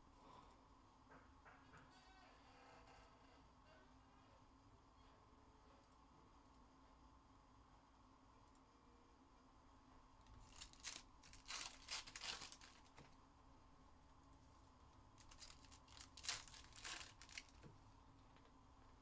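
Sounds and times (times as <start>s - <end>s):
plastic wrapping tearing and crinkling: 10.4s - 13.1s, 15.2s - 17.7s.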